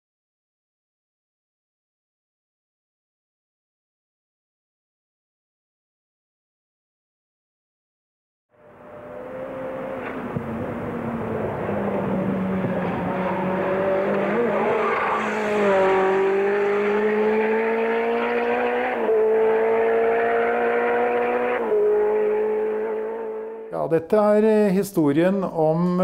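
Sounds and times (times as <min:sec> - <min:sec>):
race car engine running hard: 0:08.6 - 0:23.7.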